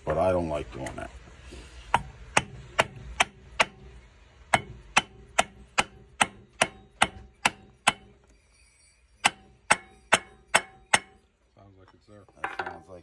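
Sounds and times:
hammer striking metal: 1.9 - 8.4, 9.2 - 11.3.

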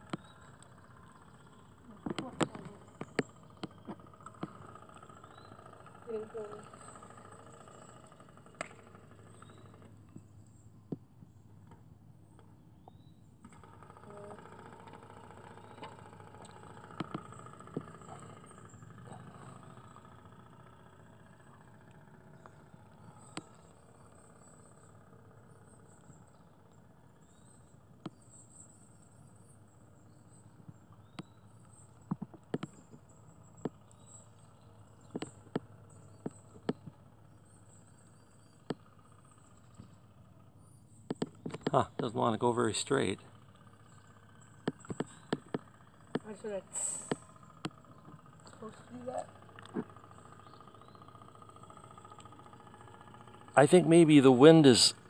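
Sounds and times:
low hum: 0.0 - 55.0
sharp clicks: 32.1 - 33.0, 41.1 - 43.2, 44.6 - 48.7.

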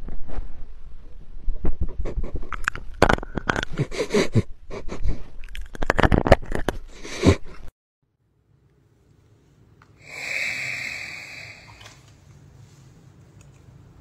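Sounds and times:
nose bumping microphone: 1.6 - 7.7.

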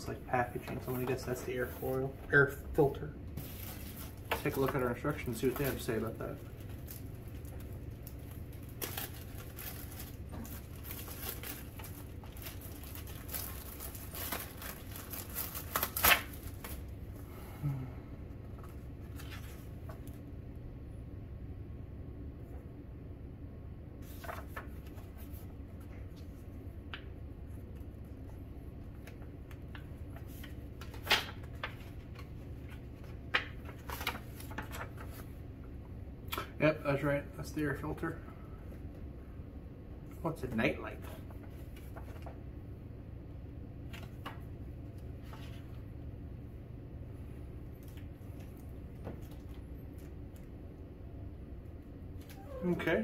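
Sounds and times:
steady low hum: 0.0 - 53.0
handling rustles and crackles: 3.4 - 16.9, 24.0 - 26.5
plastic wrapping crinkling: 3.4 - 16.9.

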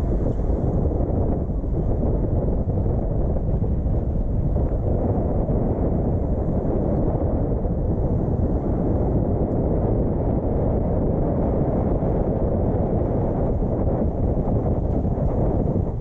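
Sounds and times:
car road and wind noise: 0.0 - 16.0.

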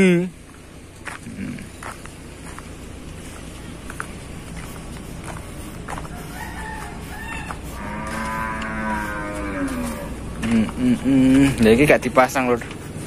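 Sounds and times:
cow mooing: 7.2 - 11.1.

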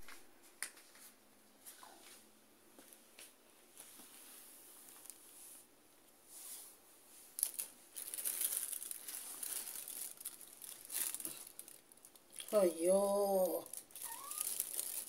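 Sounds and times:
plastic bag crinkling: 7.4 - 15.0.

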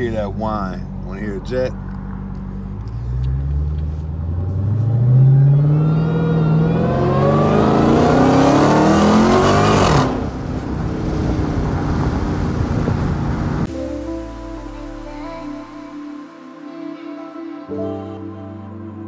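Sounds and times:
car engine accelerating hard: 0.0 - 13.7.

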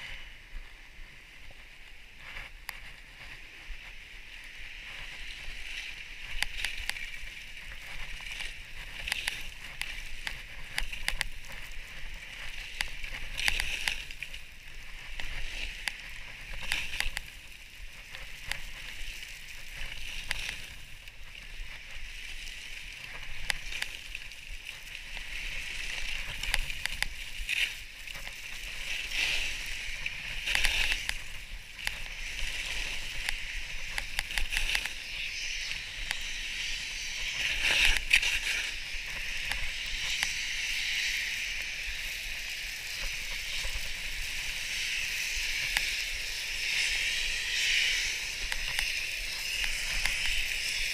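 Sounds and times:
skis scraping over snow: 0.0 - 50.9.

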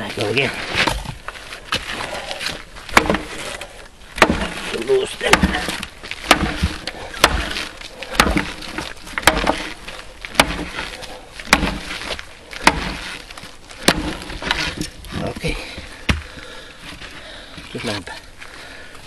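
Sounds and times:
axe striking and splitting log: 2.9 - 15.0.

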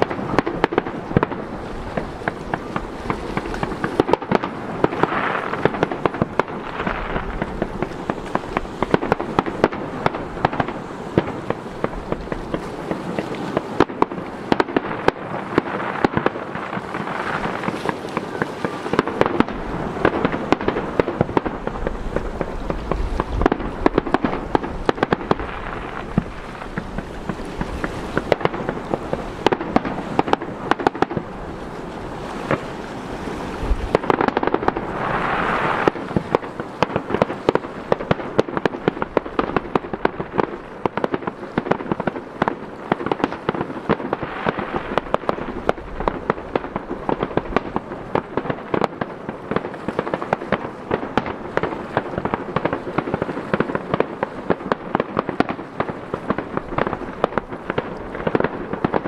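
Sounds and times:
fireworks cracking and banging: 0.0 - 59.0
fireworks hissing: 33.4 - 38.0.

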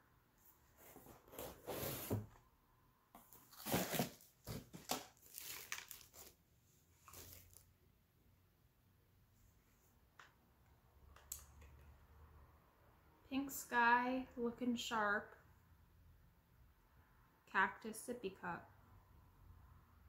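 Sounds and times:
packaging crinkling: 3.5 - 6.4, 7.0 - 7.6.

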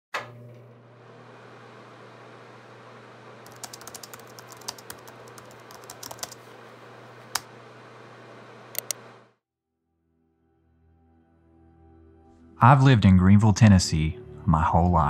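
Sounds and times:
computer keyboard typing: 3.5 - 6.4, 8.8 - 9.0.

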